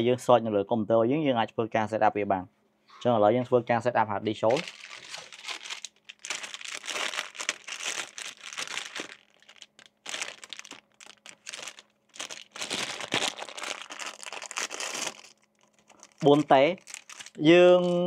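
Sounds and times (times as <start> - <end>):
plastic bag crinkling: 4.4 - 18.0.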